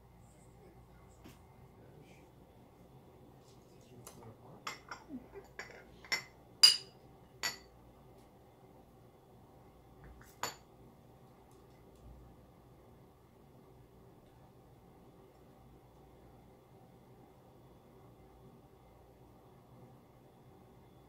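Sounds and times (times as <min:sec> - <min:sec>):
mug lids clinking: 0:04.7 - 0:07.7
ringing glass clink: 0:04.7 - 0:07.7.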